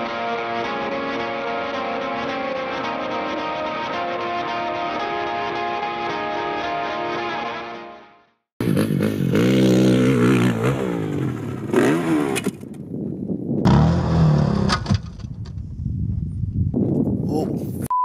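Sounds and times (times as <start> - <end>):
background music: 0.0 - 8.3
dirt bike engine revving: 8.6 - 12.6, 13.6 - 14.9.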